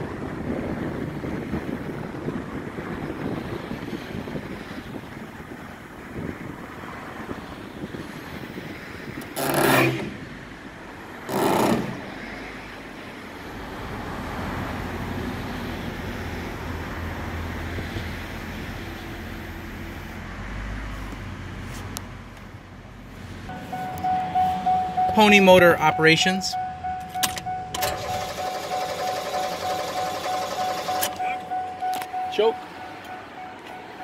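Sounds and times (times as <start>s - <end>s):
truck engine running: 23.5s - 33.3s.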